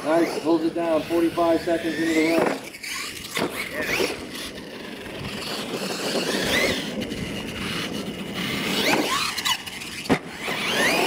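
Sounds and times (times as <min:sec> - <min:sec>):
electric motor whining: 0:00.0 - 0:11.0
tyres on dirt: 0:00.0 - 0:11.0.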